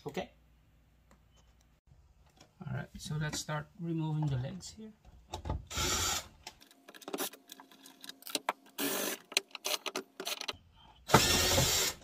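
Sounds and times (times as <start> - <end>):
cordless drill running: 5.7 - 6.3, 11.1 - 12.0.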